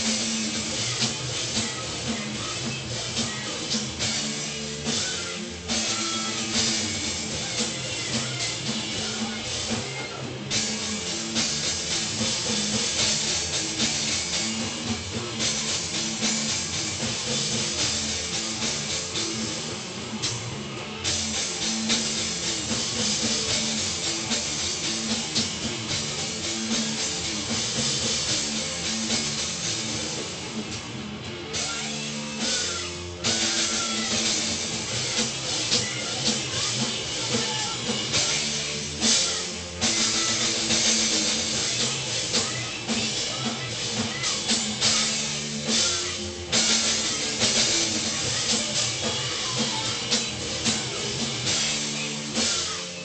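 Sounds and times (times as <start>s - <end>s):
distorted bass guitar: 0.0s - 53.0s
drum kit: 0.0s - 53.0s.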